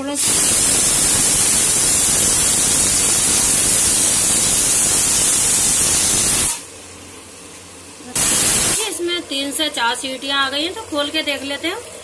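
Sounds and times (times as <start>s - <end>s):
sauce sizzling in hot oil: 0.2s - 6.6s.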